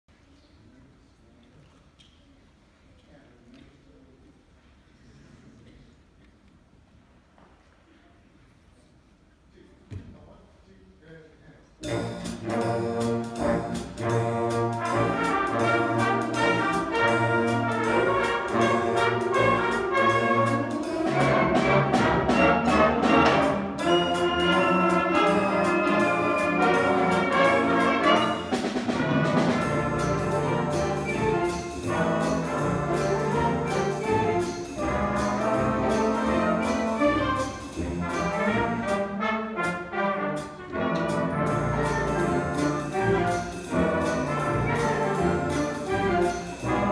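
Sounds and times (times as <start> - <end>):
concert band playing swing: 11.8 - 46.9
steady drum beat: 11.8 - 46.9
trumpets and trombones: 11.8 - 46.9.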